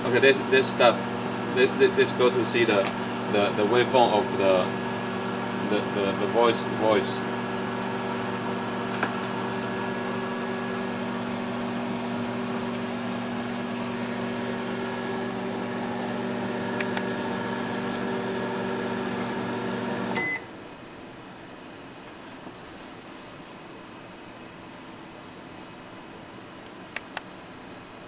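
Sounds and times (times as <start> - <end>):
microwave oven humming: 0.0 - 21.8
microwave beep: 18.4 - 20.5.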